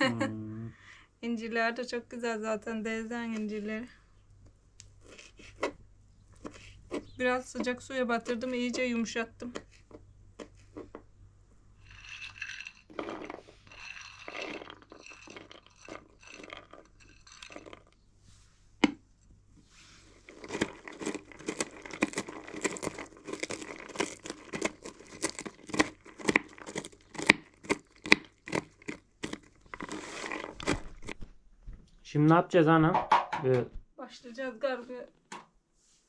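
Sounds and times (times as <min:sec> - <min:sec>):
rustling: 0:19.5 - 0:32.1.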